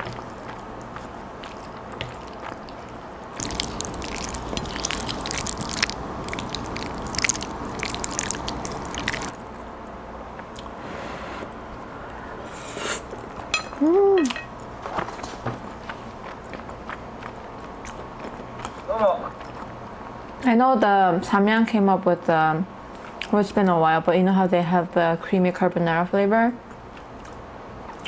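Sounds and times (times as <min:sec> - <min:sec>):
wet chewing and slurping: 0:00.0 - 0:09.7
person humming mmm: 0:13.8 - 0:14.4.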